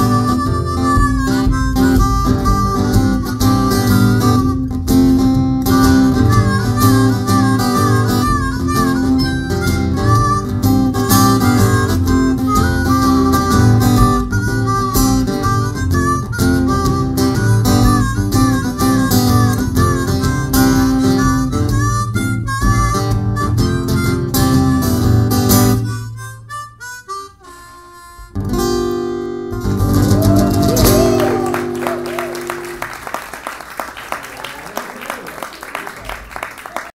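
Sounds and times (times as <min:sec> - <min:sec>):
strummed acoustic guitar: 0:00.0 - 0:26.3
harmonica with bent notes: 0:00.0 - 0:33.2.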